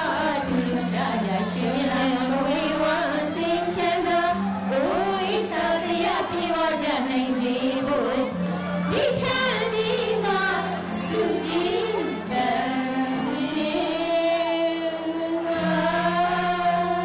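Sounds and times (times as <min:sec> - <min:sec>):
backing music: 0:00.0 - 0:17.0
women singing a duet: 0:00.0 - 0:17.0.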